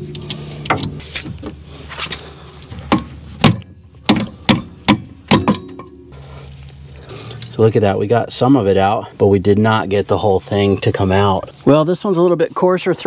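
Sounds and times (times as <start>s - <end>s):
sharp metal whacks: 2.9s - 6.0s.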